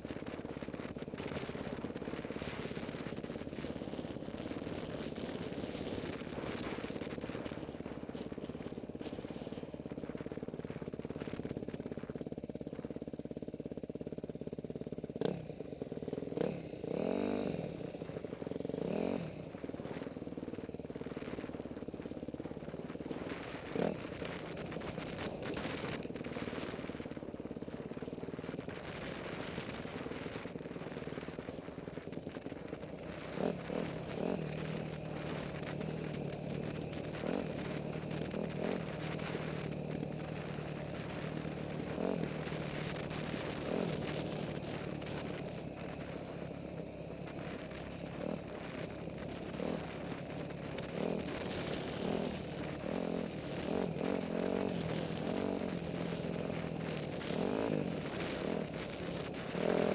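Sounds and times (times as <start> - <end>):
dirt bike engine revving: 16.3 - 17.8, 47.4 - 59.9.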